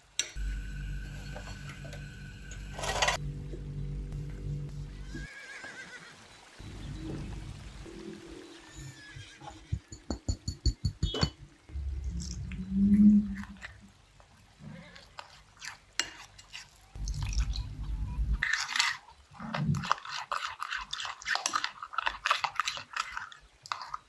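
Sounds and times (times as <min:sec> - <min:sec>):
low rumble: 0:00.4 - 0:05.2, 0:06.6 - 0:08.3, 0:11.7 - 0:13.6
metal spoon stirring batter: 0:15.0 - 0:17.7, 0:18.4 - 0:24.0.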